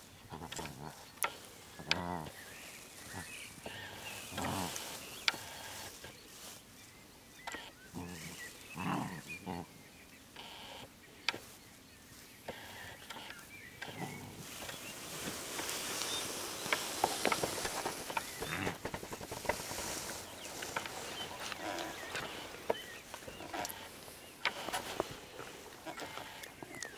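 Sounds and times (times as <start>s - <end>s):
scuffling and rustling on grass: 0.0s - 26.9s
puppies growling: 0.3s - 1.1s, 1.7s - 2.4s, 3.0s - 5.9s, 7.9s - 9.8s, 13.8s - 26.9s.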